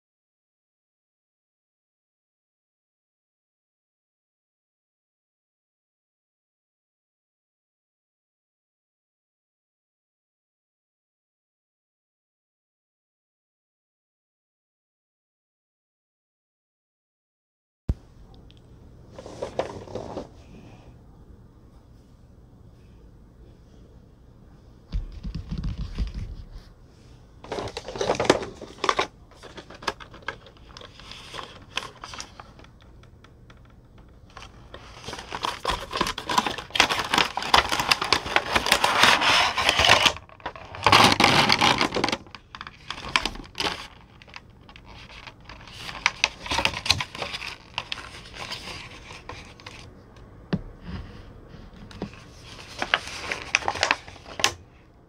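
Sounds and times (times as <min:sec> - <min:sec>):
packaging crinkling and scraping: 0:19.2 - 0:20.4, 0:27.4 - 0:32.8, 0:33.5 - 0:49.9, 0:51.8 - 0:54.6.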